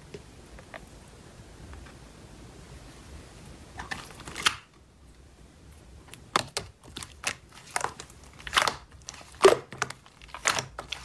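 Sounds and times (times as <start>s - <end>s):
slime squelching: 6.0s - 11.0s.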